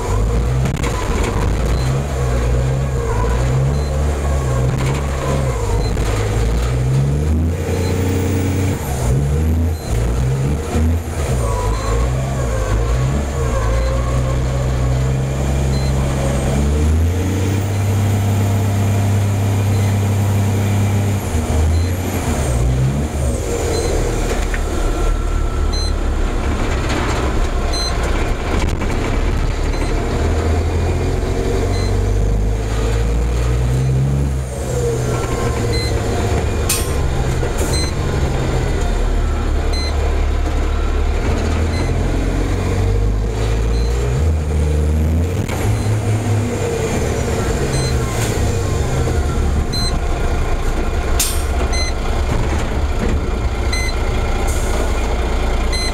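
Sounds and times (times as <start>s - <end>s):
truck diesel engine revving: 0.0s - 55.9s.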